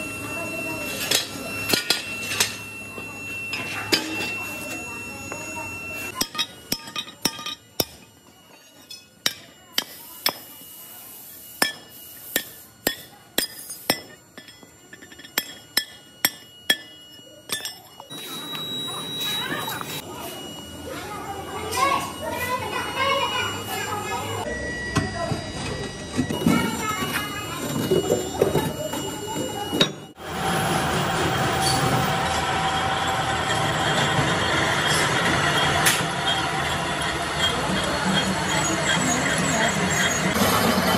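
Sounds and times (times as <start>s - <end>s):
faint machine whine: 0.0s - 40.9s
hammer clinking on steel: 6.2s - 8.1s, 11.6s - 18.1s.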